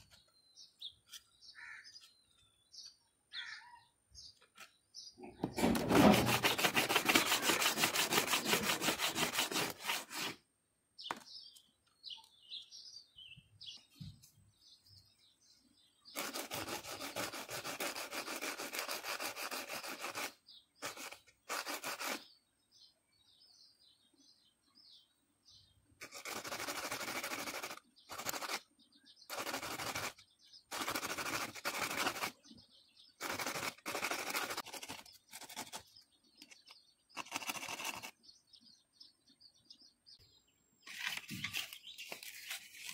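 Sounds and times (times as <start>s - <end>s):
birds chirping: 0.0s - 42.9s
metal rubbed on sandpaper: 5.6s - 10.4s, 16.1s - 22.4s, 26.0s - 28.7s, 29.3s - 32.6s, 33.2s - 36.0s, 36.6s - 38.2s
brush scrubbing: 5.8s - 10.4s, 16.2s - 22.4s, 26.0s - 28.6s, 29.3s - 32.5s, 33.2s - 36.0s.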